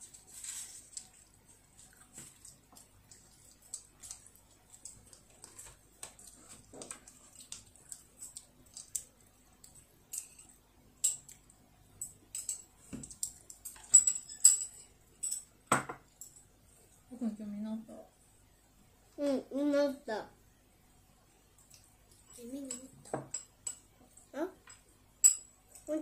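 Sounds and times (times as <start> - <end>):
child chewing: 0.0 - 15.5, 21.5 - 24.8.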